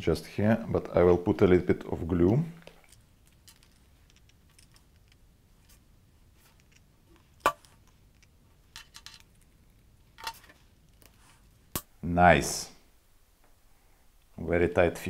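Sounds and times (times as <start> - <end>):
plastic parts clicking: 6.6 - 9.5.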